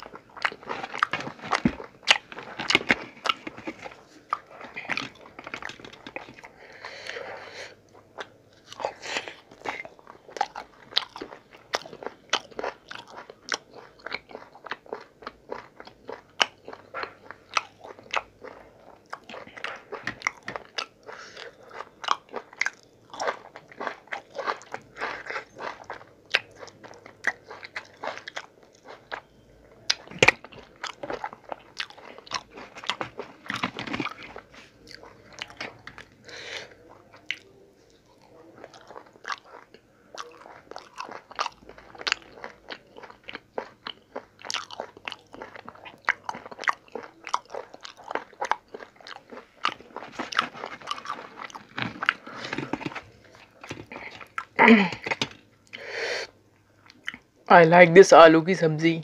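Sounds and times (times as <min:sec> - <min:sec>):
person biting and chewing: 0:00.0 - 0:06.5, 0:08.1 - 0:36.1, 0:38.2 - 0:55.3
crunchy bites: 0:40.2 - 0:55.3.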